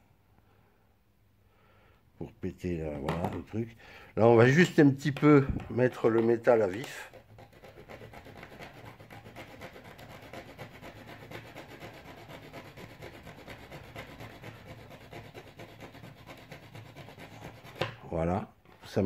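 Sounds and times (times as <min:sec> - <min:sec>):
hand tool scraping steel rail: 0:06.2 - 0:17.9.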